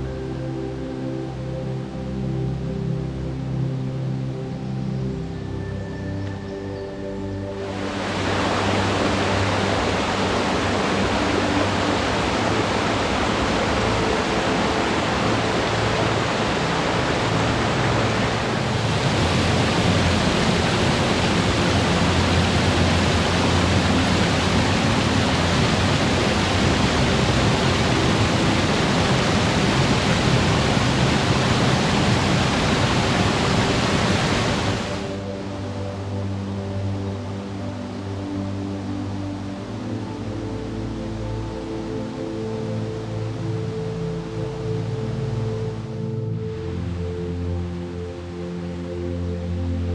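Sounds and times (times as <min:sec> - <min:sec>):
water rushing down a cascade: 0:07.6 - 0:38.7.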